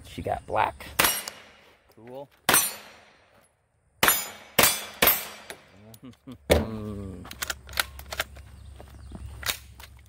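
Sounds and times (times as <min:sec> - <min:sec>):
gunshots: 0:01.0 - 0:01.7, 0:02.5 - 0:03.3, 0:04.0 - 0:05.7.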